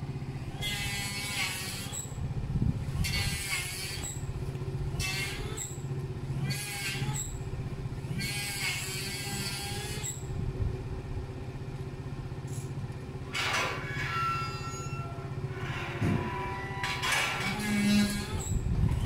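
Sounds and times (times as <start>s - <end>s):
rasping scraping building work: 0.0s - 2.2s, 2.8s - 4.3s, 4.9s - 7.4s, 8.0s - 10.3s, 12.5s - 19.0s
scooter engine idling: 0.0s - 13.4s.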